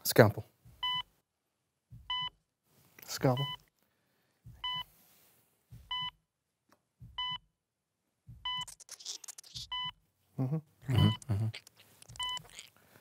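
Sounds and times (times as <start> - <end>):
heart monitor beeping: 0.6 - 1.1, 1.9 - 2.4, 3.3 - 3.7, 4.4 - 4.9, 5.7 - 6.2, 7.0 - 7.5, 8.3 - 8.8, 9.5 - 10.0, 10.9 - 11.3, 12.0 - 12.6
soft low thump: 1.9 - 2.4, 4.4 - 4.8, 5.7 - 6.2, 7.0 - 7.4.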